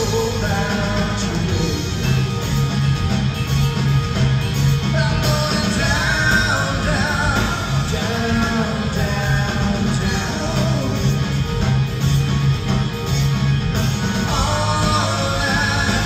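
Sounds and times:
singer singing: 0.0 - 2.4, 4.8 - 11.4, 14.2 - 16.0
rock band playing: 0.0 - 16.0.

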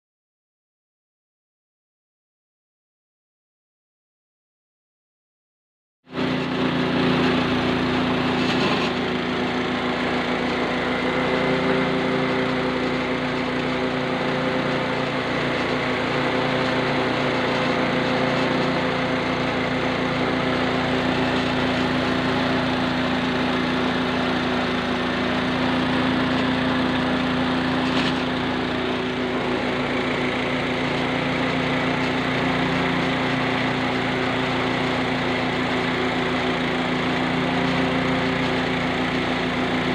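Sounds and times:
small petrol engine droning: 6.1 - 39.9.

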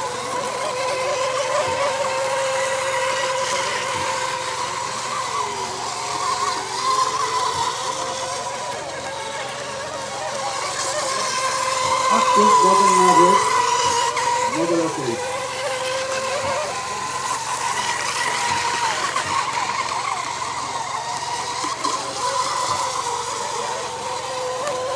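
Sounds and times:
model boat motor whine: 0.0 - 24.9.

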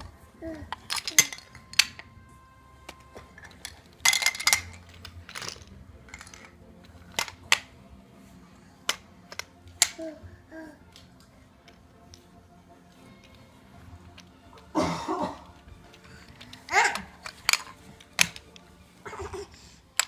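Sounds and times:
magnetic toy pieces clicking: 0.6 - 2.2, 2.9 - 7.7, 8.8 - 10.0, 15.8 - 18.7.

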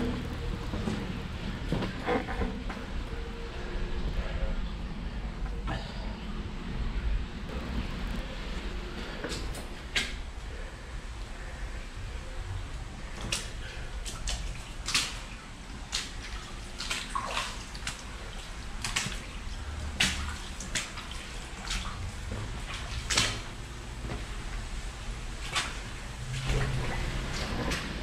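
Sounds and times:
footsteps splashing through water: 13.2 - 23.6.

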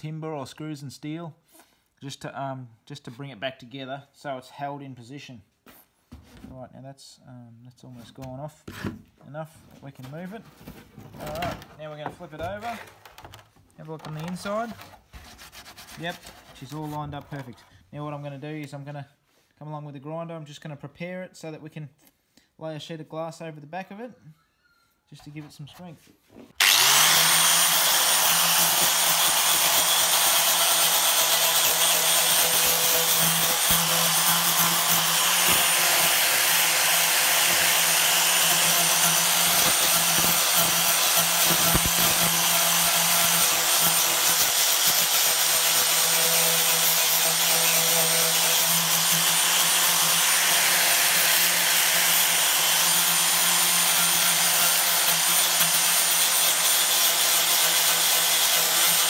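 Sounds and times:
angle grinder sanding fibreglass: 26.6 - 59.0.

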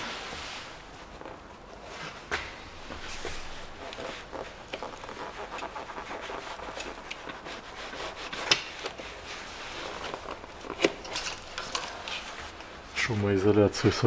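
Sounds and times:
gloved hand rubbing engine parts: 0.0 - 13.2.

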